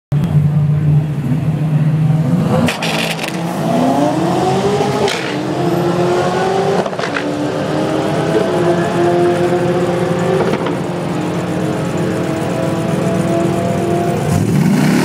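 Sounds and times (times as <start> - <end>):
car engines revving: 0.1 - 15.0
sharp engine cracks: 2.6 - 3.4.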